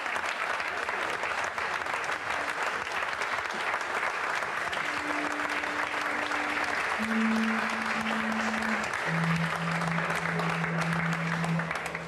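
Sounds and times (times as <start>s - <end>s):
audience applauding: 0.0s - 12.0s
long held instrumental notes: 4.8s - 12.0s.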